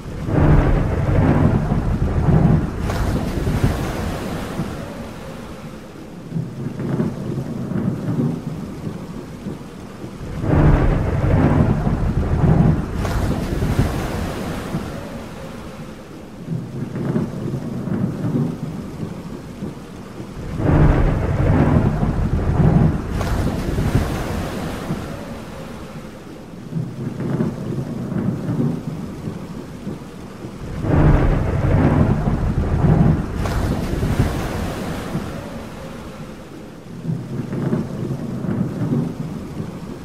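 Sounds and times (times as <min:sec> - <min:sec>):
rolling thunder: 0:00.0 - 0:09.2, 0:10.1 - 0:19.3, 0:20.1 - 0:40.0
rain: 0:00.0 - 0:40.0.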